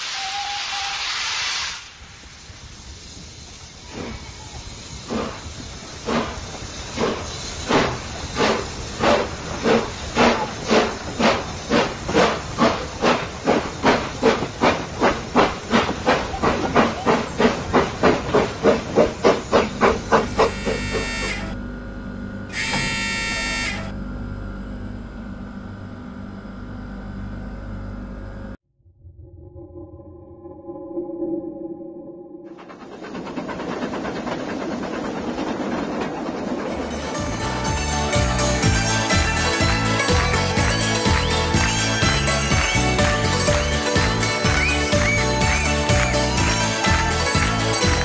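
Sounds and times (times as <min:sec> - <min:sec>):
steam whistle blasts: 0:00.0 - 0:01.9, 0:19.6 - 0:21.6, 0:22.5 - 0:24.0
steam locomotive chuffing: 0:00.0 - 0:21.8, 0:22.5 - 0:24.5, 0:32.5 - 0:48.0
train rolling rumble: 0:01.8 - 0:28.5, 0:32.3 - 0:48.0.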